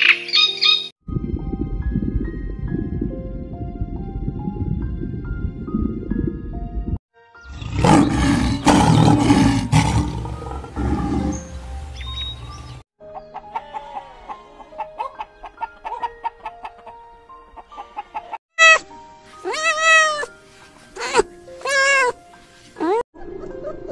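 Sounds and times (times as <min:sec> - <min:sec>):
soft background music: 0:00.0 - 0:23.9
lion roaring: 0:07.5 - 0:11.5.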